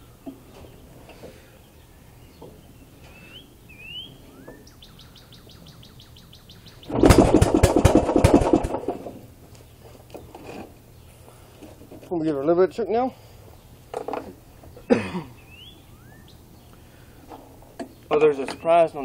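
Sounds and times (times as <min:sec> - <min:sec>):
birds chirping: 0:00.0 - 0:19.0
pull-start engine sputtering: 0:06.9 - 0:09.2.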